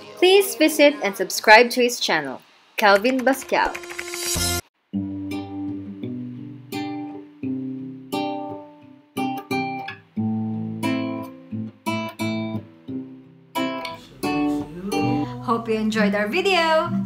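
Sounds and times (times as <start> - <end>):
acoustic guitar chords: 4.8 - 17.0.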